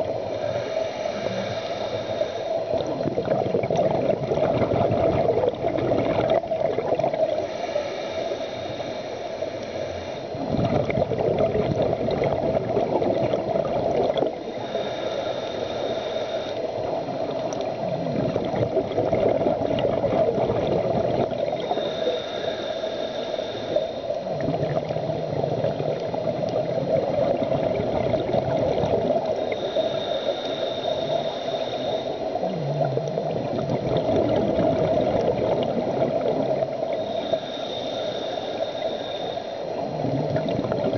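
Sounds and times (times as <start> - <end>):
bubbling gurgle of exhaled air: 0.0 - 40.9
steady underwater drone: 0.0 - 40.9
diver inhaling through regulator: 0.2 - 3.5, 7.2 - 11.0, 13.6 - 17.3, 21.0 - 26.3, 28.1 - 40.9.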